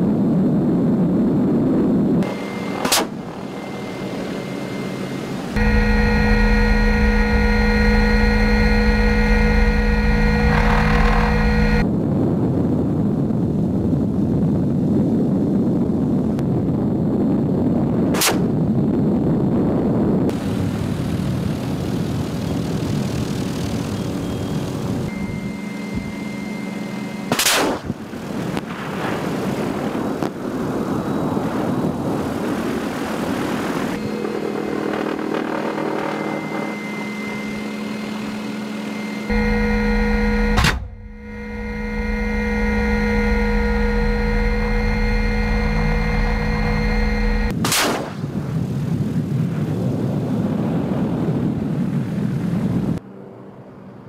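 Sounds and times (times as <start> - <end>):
helicopter engine and rotor hum: 0.1 - 11.9, 20.2 - 28.9, 30.3 - 47.6
sharp loud cracks: 18.1 - 18.5, 27.3 - 28.0, 47.5 - 48.3.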